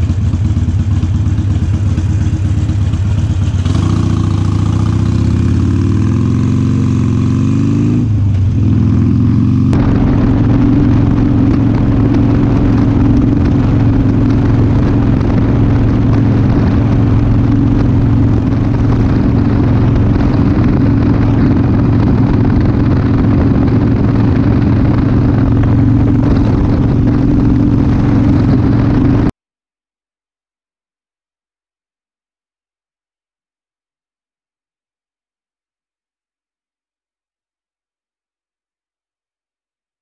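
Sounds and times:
motorcycle engine running: 0:00.0 - 0:29.3.

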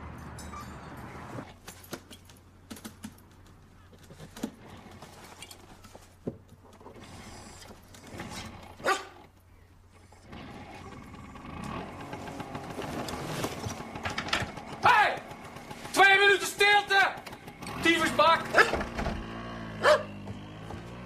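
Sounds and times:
dog barking: 0:08.8 - 0:09.2, 0:18.5 - 0:18.8, 0:19.8 - 0:20.2.

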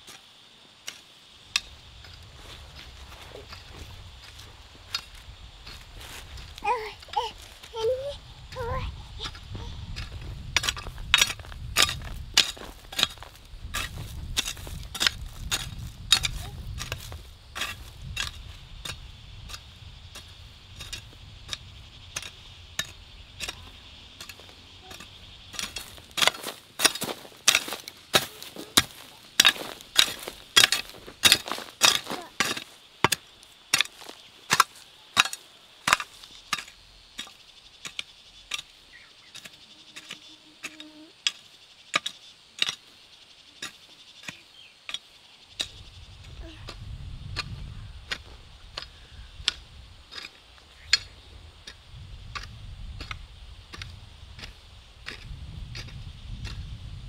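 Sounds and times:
hoe chopping into soil: 0:20.2 - 0:42.9.

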